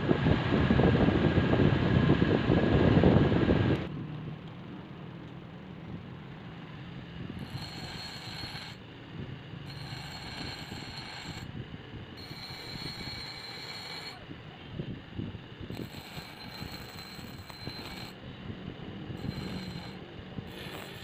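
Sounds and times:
bench grinder motor running: 7.3 - 8.8, 9.6 - 11.5, 12.2 - 14.2, 15.7 - 18.2, 19.2 - 21.0
high-pitched metal grinding: 7.4 - 8.8, 9.6 - 11.5, 12.2 - 14.3, 15.7 - 18.2, 19.2 - 21.0.

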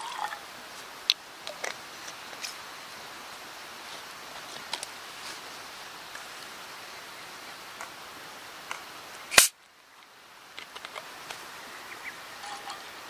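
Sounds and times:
stream rushing: 0.0 - 9.5, 10.1 - 13.0
loud sharp crack: 9.3 - 9.6.

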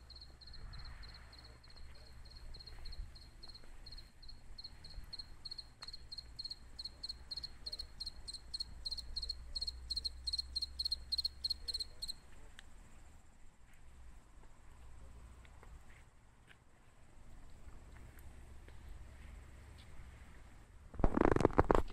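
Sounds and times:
cricket chirping: 0.0 - 13.7.

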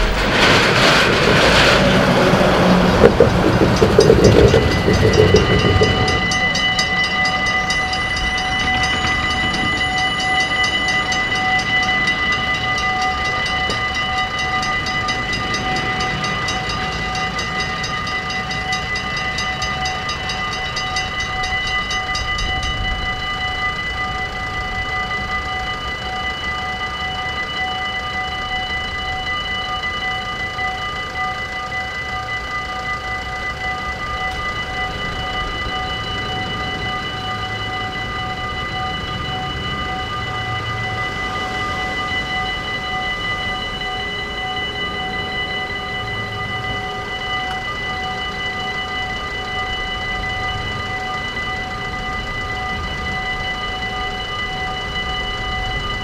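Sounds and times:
truck passing: 0.0 - 19.9
level crossing bell ringing: 2.3 - 56.0.

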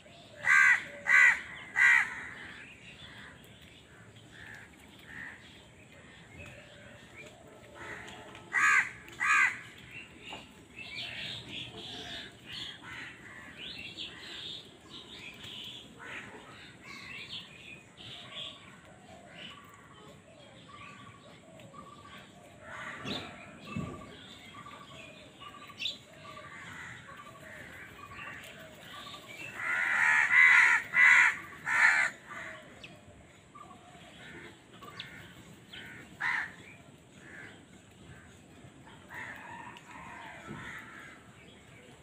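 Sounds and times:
crows cawing: 0.4 - 3.3, 7.7 - 9.8, 26.3 - 28.2, 29.0 - 32.7, 34.3 - 36.6, 39.1 - 41.3.

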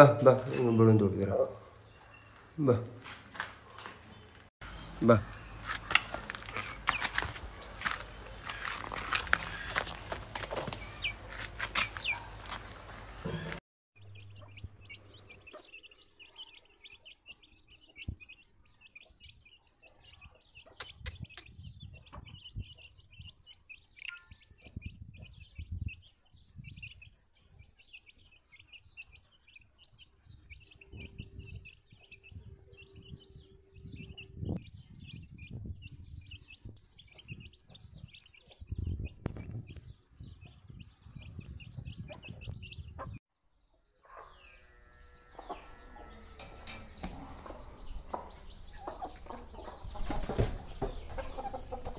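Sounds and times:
chicks peeping: 0.0 - 51.9
low rumbles: 44.5 - 49.9.

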